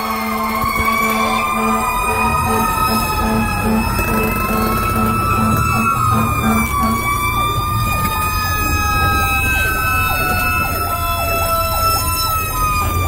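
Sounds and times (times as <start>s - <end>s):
low pulsing tone: 0.0s - 9.6s
truck engine rumbling: 0.0s - 13.0s
wailing siren: 0.0s - 13.0s
yelping siren: 0.0s - 13.0s.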